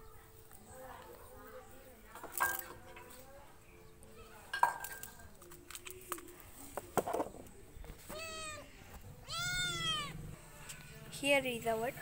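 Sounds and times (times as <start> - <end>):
cat meowing: 8.1 - 10.2.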